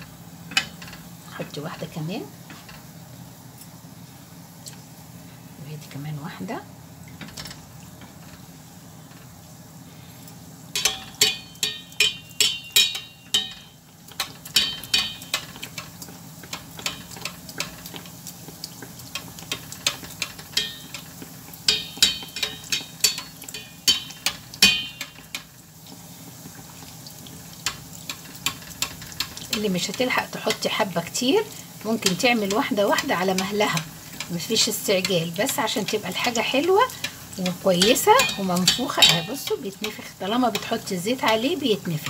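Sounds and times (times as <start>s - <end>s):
oil sizzling: 0.0s - 42.0s
metal spoon clinking on saucepan: 10.7s - 15.9s, 19.5s - 25.5s, 35.0s - 41.6s.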